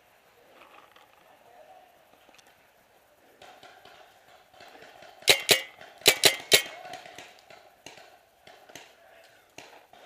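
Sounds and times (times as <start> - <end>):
paintball marker shots: 3.4 - 9.0.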